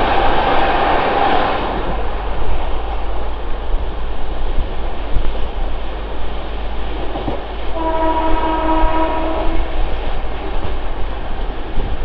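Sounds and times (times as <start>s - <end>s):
train track noise: 0.0s - 12.0s
wind at train door: 0.0s - 12.0s
train horn: 7.7s - 9.8s.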